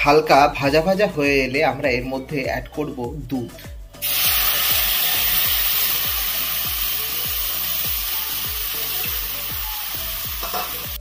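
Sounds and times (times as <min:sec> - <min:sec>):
background music with low beat: 0:00.0 - 0:11.0
semolina sizzling in hot ghee: 0:04.0 - 0:11.0.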